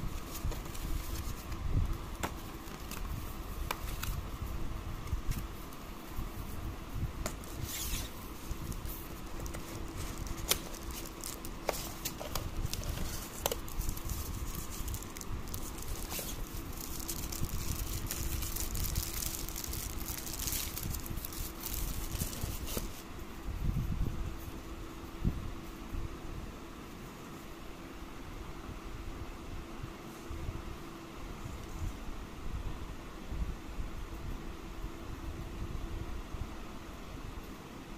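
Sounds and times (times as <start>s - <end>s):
paper and cardboard rustling: 0.0s - 4.3s, 7.2s - 23.1s
faint steady hum: 0.0s - 37.9s.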